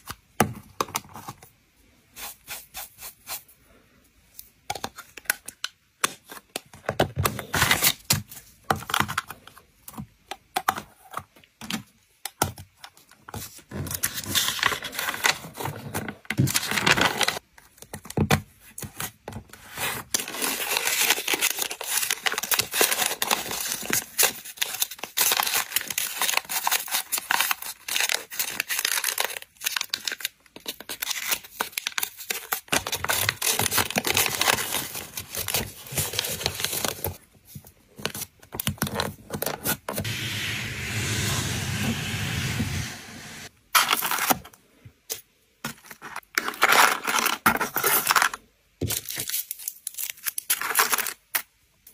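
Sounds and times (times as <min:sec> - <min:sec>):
wrapping paper crinkling: 0:20.1 - 0:37.2, 0:45.8 - 0:51.4
smooth rubbing sound: 0:40.0 - 0:43.5.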